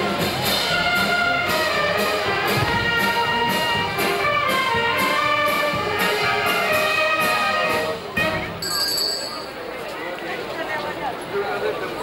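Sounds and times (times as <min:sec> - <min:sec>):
brass band playing a march: 0:00.0 - 0:09.3.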